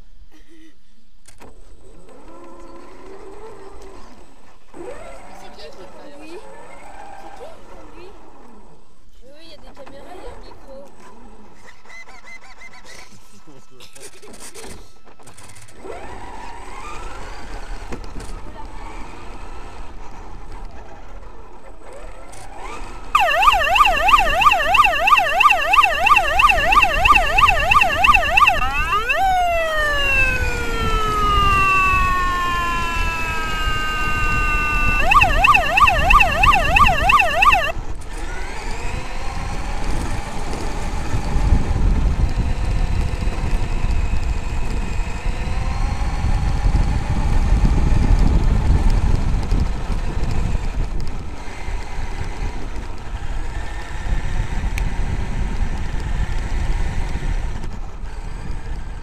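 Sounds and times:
electronic siren yelping: 23.2s - 37.7s.

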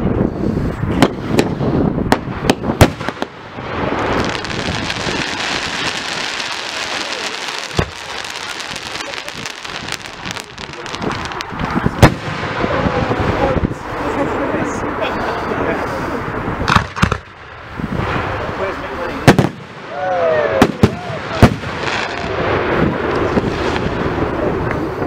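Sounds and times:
fireworks crackling: 0.0s - 25.0s
firework shells bursting: 1.0s - 12.8s, 16.7s - 17.5s.

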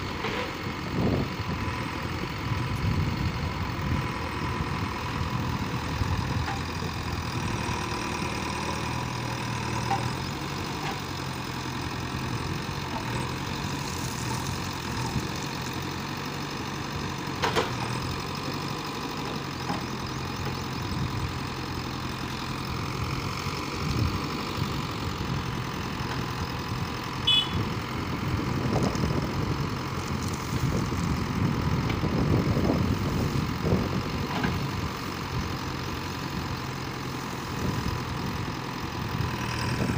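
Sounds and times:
backhoe digging soil: 0.0s - 1.8s, 3.8s - 39.9s
diesel engine running: 0.0s - 39.9s.

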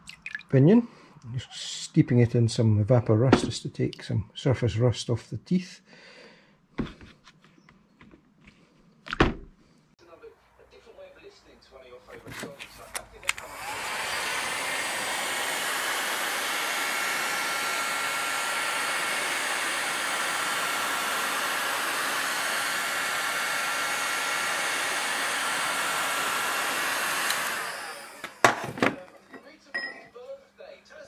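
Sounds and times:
hot-air gun fan blowing: 12.4s - 29.2s
hot-air gun switch clicks: 27.2s - 27.6s.

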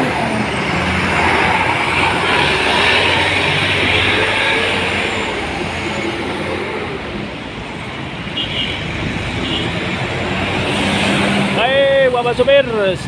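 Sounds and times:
buses and cars driving past: 0.0s - 13.0s
steady road noise: 0.0s - 13.0s.

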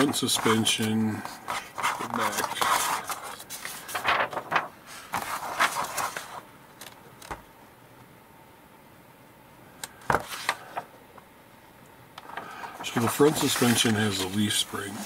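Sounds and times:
paper pages rustling: 0.0s - 7.4s, 10.1s - 10.9s, 12.2s - 15.0s.

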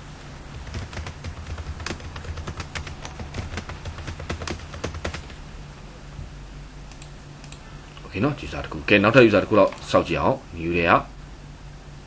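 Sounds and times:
low steady hum: 0.0s - 12.0s
computer keyboard typing: 0.5s - 5.4s.

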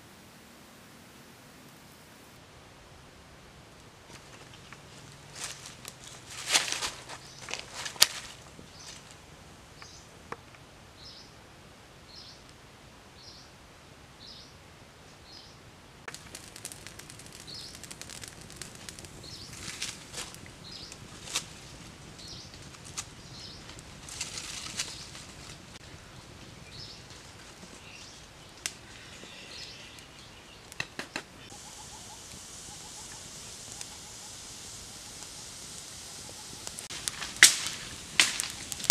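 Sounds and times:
steady hiss: 0.0s - 38.9s
wood fire crackling and popping: 4.1s - 9.2s, 16.0s - 38.9s
bird chirping: 27.8s - 30.8s.

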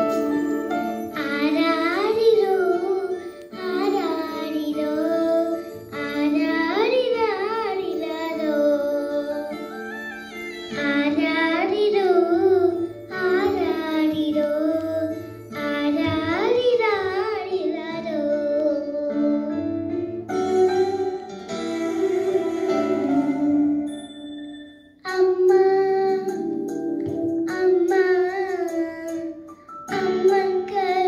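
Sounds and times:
instrumental accompaniment: 0.0s - 31.0s
girl singing into microphone: 0.9s - 9.9s, 10.7s - 19.7s, 25.0s - 31.0s.

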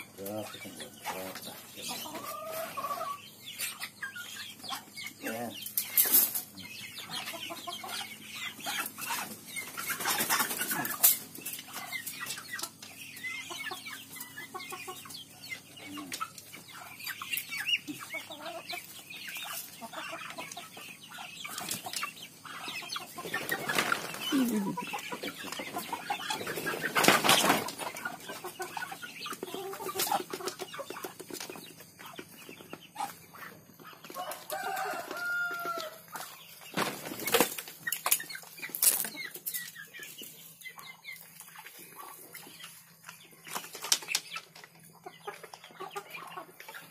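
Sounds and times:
hens clucking: 0.0s - 46.9s
wings flapping: 23.2s - 24.5s, 26.4s - 27.8s.

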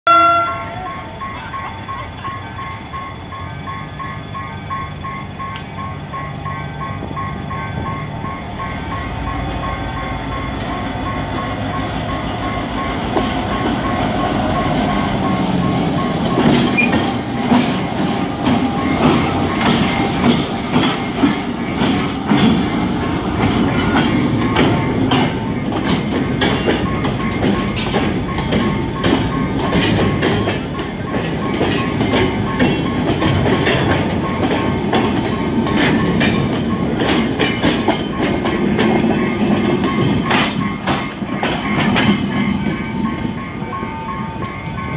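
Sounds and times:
diesel locomotive engine: 0.0s - 44.9s
wheel clacks over rail joints: 11.1s - 43.8s.

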